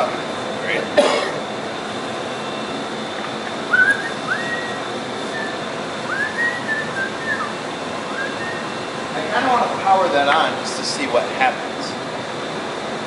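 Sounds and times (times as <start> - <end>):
person whistling: 3.7 - 7.5, 8.1 - 8.7.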